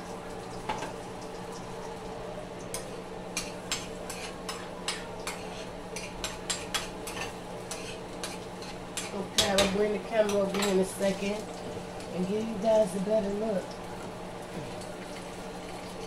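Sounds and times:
low steady sizzle: 0.0s - 16.0s
utensil scraping frying pan: 3.4s - 11.4s.

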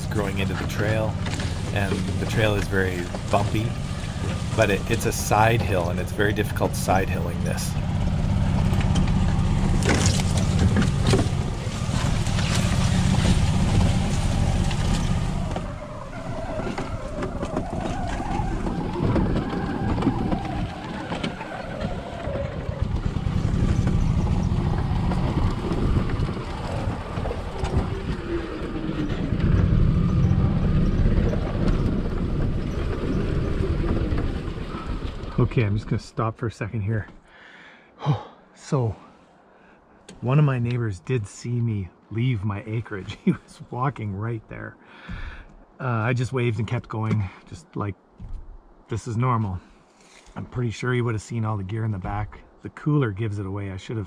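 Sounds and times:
golf cart running: 0.0s - 35.8s
knocks and jolts from rough ground: 7.9s - 28.3s.

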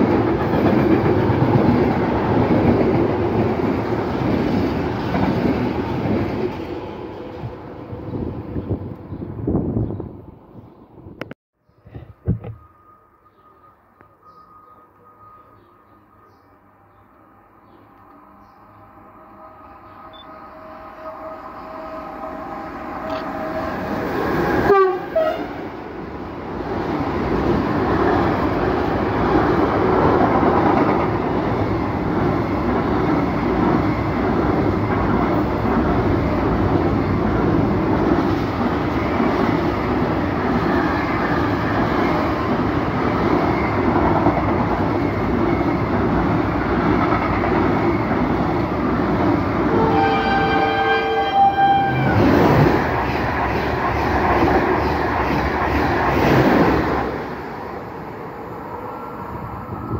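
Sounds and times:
train horn: 18.3s - 25.6s, 49.6s - 52.6s.

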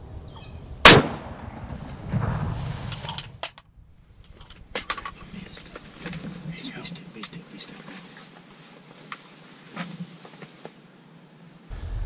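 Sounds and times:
shotgun shot with echo: 0.8s - 2.4s.

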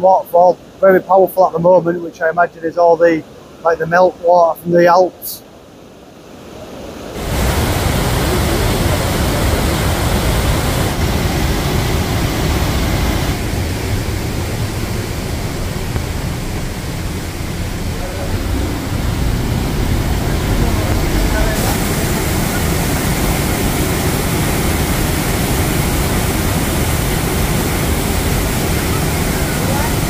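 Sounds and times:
waterfall rushing: 6.2s - 30.0s.

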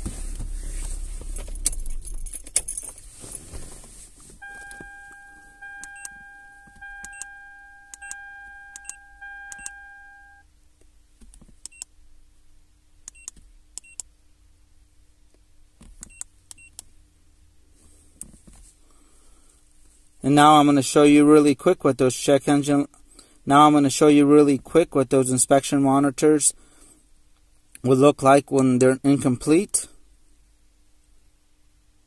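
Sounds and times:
short high beeps: 4.4s - 10.4s
steady electronic tone: 4.4s - 10.4s
buttons clicking: 4.5s - 9.8s.

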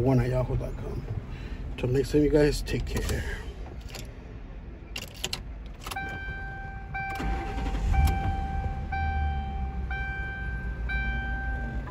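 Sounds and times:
car engine starting and idling: 0.0s - 11.9s
ignition key clicking: 3.8s - 4.1s, 4.9s - 6.4s
dashboard warning chime: 5.8s - 11.9s.

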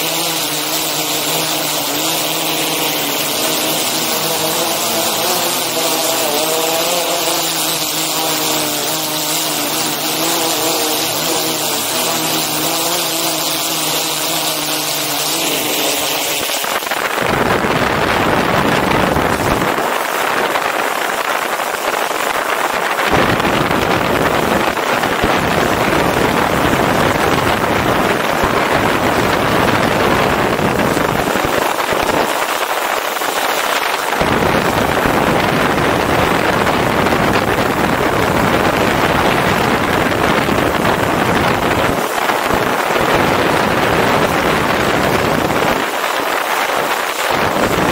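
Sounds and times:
drone propellers whining: 0.0s - 19.8s
wind rushing over microphone: 0.0s - 47.9s.

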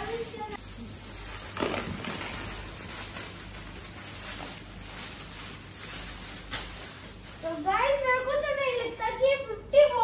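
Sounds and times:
plastic balls tumbling: 0.0s - 7.6s
plastic bag crinkling: 0.0s - 9.5s.

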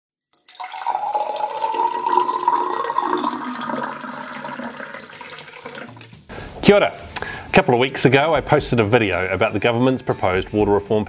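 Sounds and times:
tap water filling a glass: 0.3s - 6.2s.

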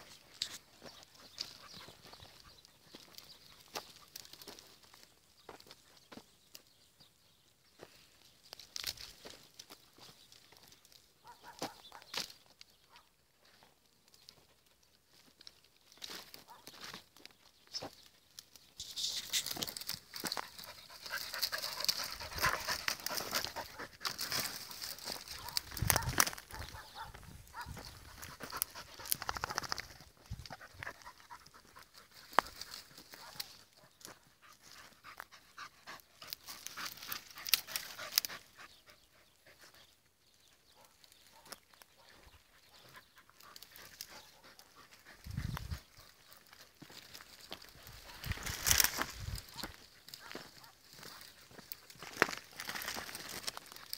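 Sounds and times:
dry brush crackling and rustling: 0.0s - 6.6s, 7.8s - 38.5s, 40.7s - 53.9s
dogs panting: 0.1s - 4.3s, 19.9s - 40.0s, 40.8s - 48.2s
twigs snapping: 18.4s - 27.1s, 36.3s - 38.4s, 46.9s - 53.9s
dog panting: 20.4s - 24.2s, 42.6s - 46.4s.

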